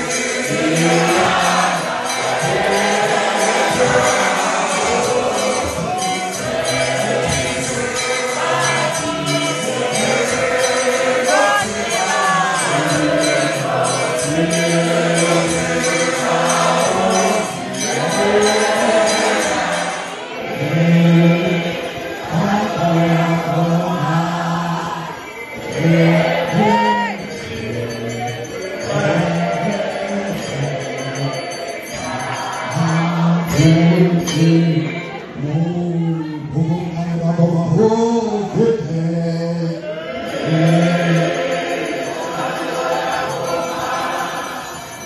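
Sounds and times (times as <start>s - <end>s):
rhythmic hand clapping: 0.0s - 20.5s, 25.6s - 34.5s
congregation singing a hymn: 0.0s - 45.0s.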